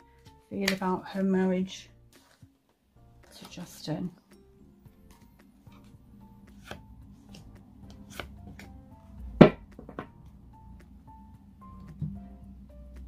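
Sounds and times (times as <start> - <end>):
soft background music: 0.0 - 13.0
cards snapping and tapping: 0.6 - 0.8, 6.5 - 8.7.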